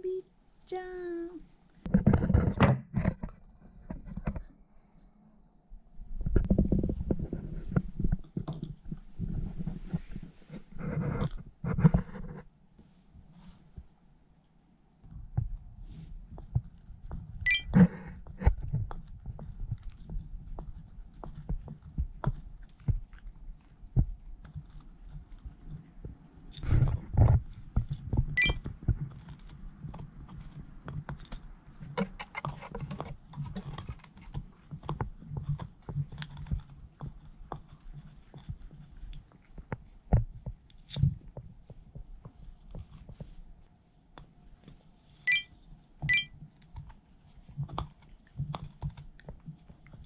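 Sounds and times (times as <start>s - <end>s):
dog gnawing on bamboo: 16.3s - 43.4s, 46.4s - 50.0s.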